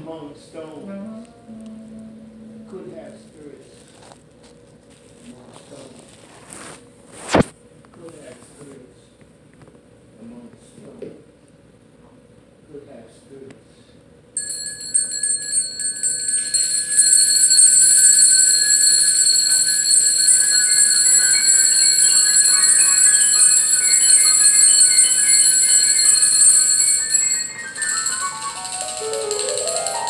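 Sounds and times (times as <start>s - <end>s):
pitched percussion notes: 0.8s - 3.7s, 15.7s - 30.0s
bells jingling: 14.4s - 30.0s
mallet percussion run: 14.4s - 30.0s.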